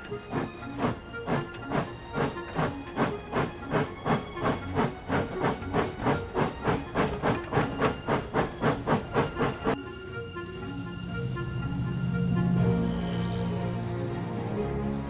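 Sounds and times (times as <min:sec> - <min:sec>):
steam locomotive chuffing: 0:00.1 - 0:09.8.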